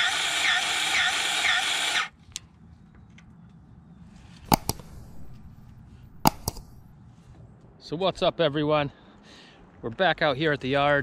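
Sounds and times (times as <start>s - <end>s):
grease gun clicking: 4.5s - 6.9s.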